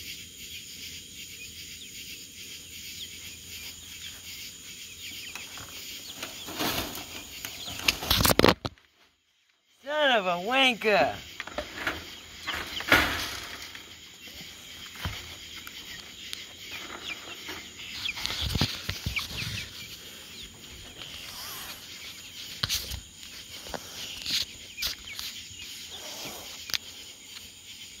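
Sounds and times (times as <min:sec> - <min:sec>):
chickens clucking and peeping: 0:00.0 - 0:09.1, 0:09.9 - 0:28.0.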